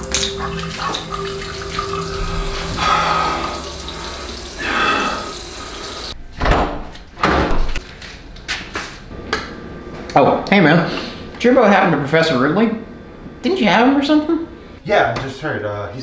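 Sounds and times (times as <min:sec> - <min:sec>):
tap water running into sink: 0:00.0 - 0:06.2.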